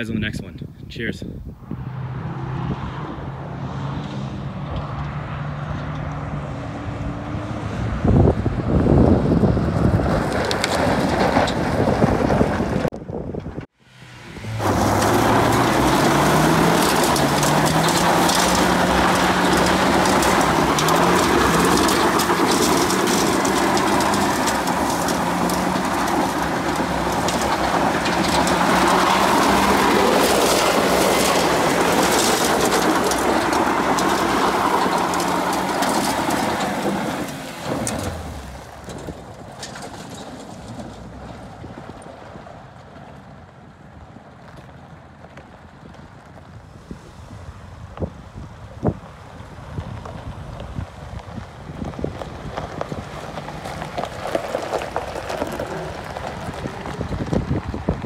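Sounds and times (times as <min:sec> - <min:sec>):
tyres spinning on gravel: 0:08.9 - 0:12.9, 0:14.1 - 0:58.0
car engine revving: 0:13.7 - 0:39.8
gravel spraying: 0:14.0 - 0:40.8, 0:46.1 - 0:58.0.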